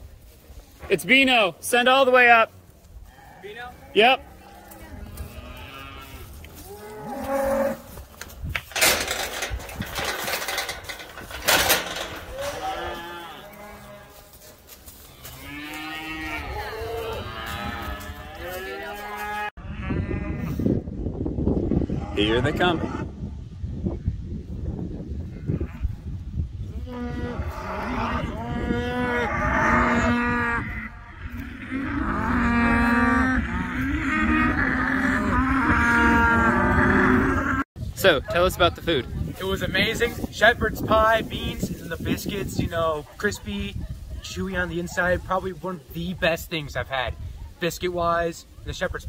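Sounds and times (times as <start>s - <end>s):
cattle mooing: 3.1s - 7.9s, 10.0s - 14.2s, 15.2s - 20.5s, 26.8s - 37.6s.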